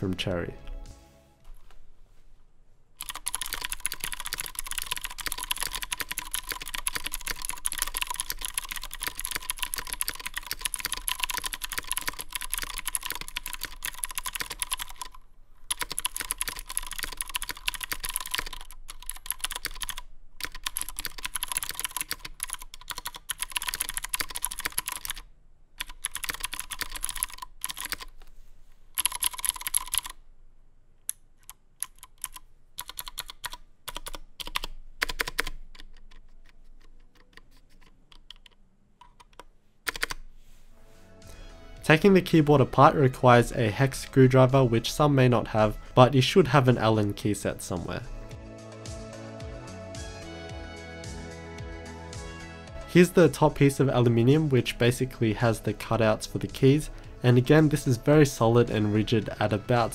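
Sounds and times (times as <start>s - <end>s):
typing on clicky mechanical keyboard: 3.0s - 25.2s, 25.8s - 28.2s, 29.0s - 30.2s, 31.4s - 40.2s.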